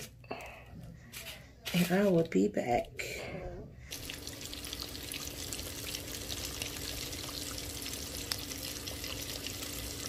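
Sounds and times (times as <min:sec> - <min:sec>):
chicken deep-frying in oil: 0:03.9 - 0:10.0.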